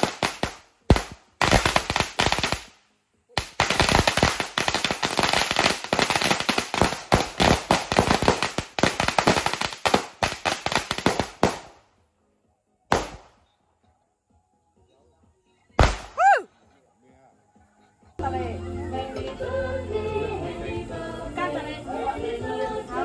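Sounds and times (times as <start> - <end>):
firecrackers crackling: 0.0 - 12.0, 12.9 - 13.4, 15.8 - 16.3.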